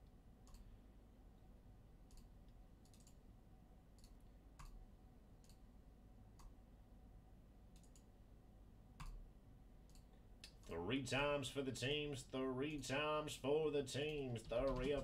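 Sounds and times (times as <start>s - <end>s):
computer mouse clicks: 0.4s - 0.7s, 2.0s - 3.2s, 4.0s - 4.8s, 5.4s - 5.7s, 6.3s - 6.6s, 7.7s - 8.1s, 9.0s - 9.2s, 9.8s - 10.7s.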